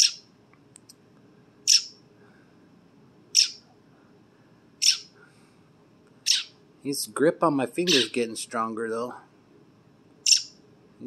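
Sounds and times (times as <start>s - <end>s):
young bird chirping: 0.0s - 0.2s, 1.7s - 2.0s, 3.4s - 3.6s, 4.8s - 5.1s, 6.2s - 6.6s, 7.8s - 8.2s, 10.2s - 10.6s.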